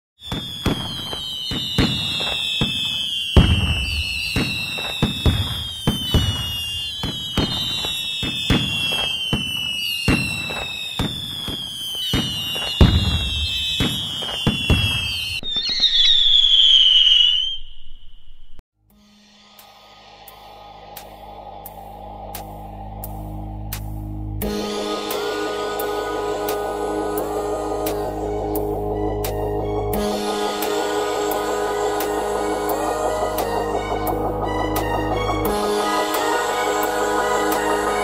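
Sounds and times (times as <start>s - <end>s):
firework bangs and cracks: 0.2s - 17.5s
whistling fireworks: 0.2s - 18.6s, 24.4s - 38.0s.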